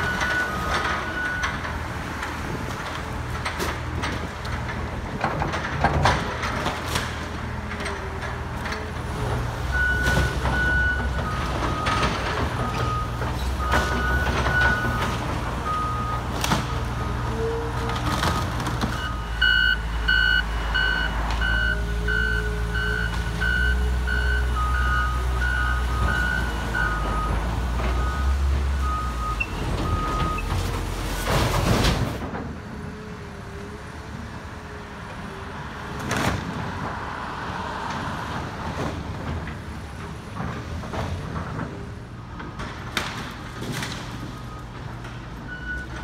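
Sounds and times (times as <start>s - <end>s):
diesel engines running: 0.0s - 46.0s
high-pitched backup alarm beeping: 19.0s - 27.4s
lower-pitched backup alarm beeping: 19.0s - 27.4s.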